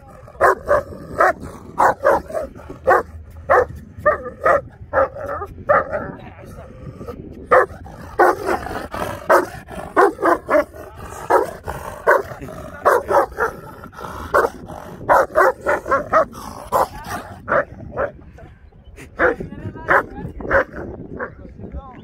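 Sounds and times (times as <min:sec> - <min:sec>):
dog barking: 0:00.4 - 0:06.0, 0:07.5 - 0:08.6, 0:09.3 - 0:10.7, 0:11.3 - 0:13.6, 0:14.3 - 0:14.5, 0:15.1 - 0:18.2.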